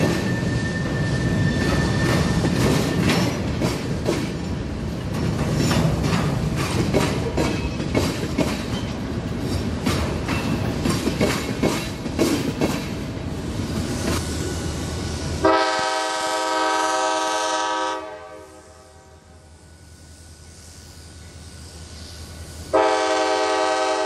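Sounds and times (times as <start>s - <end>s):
freight train rumbling: 0.0s - 24.0s
wheels clicking over rail joints: 1.7s - 13.0s.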